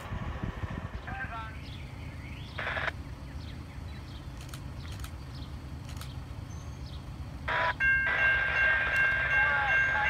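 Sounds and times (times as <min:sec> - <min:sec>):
low steady rumble: 0:00.0 - 0:10.0
faint bird chirps: 0:01.5 - 0:07.2.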